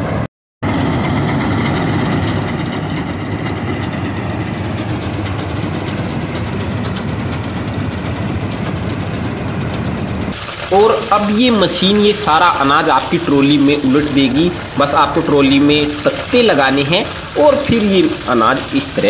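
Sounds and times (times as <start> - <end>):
combine harvester engine drone: 0.0 - 19.0
dense hiss: 10.4 - 19.0.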